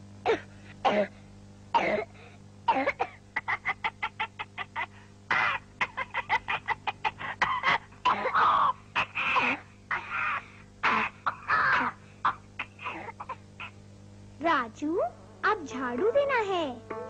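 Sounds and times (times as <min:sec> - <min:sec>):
cartoon boy coughing: 0:01.8 - 0:02.1, 0:02.7 - 0:13.8.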